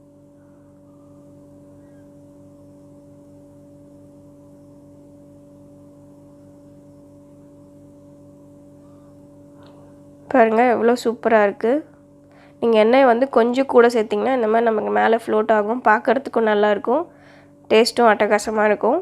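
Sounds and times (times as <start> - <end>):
faint two-tone hum: 0.0 - 19.0.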